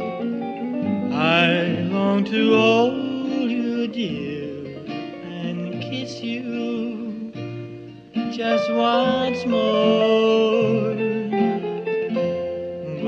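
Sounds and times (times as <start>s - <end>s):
rock and roll band with guitar: 0.0s - 13.0s
high melody with vibrato: 8.1s - 13.0s.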